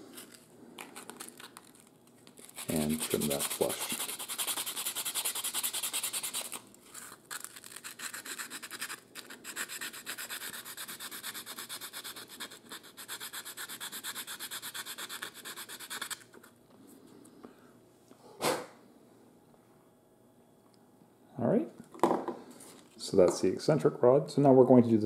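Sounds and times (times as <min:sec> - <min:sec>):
sandpaper sanding wood: 0:02.6 - 0:06.6, 0:07.8 - 0:16.2.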